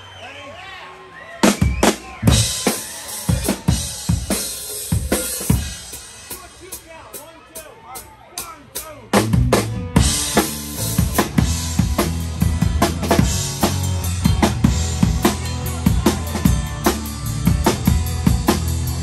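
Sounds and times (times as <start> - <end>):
rock drum beat: 1.4 - 19.0
low bass notes: 9.1 - 19.0.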